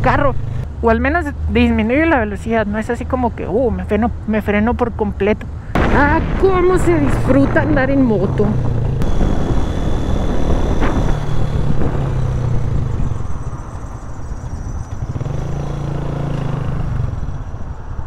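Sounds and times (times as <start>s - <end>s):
motorcycle engine running: 7.7s - 17.6s.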